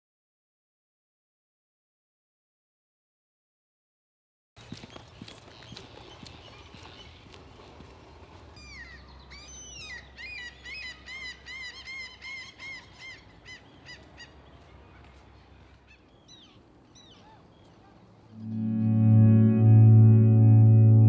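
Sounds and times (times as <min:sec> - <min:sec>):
bird calling: 0:08.6 - 0:14.6.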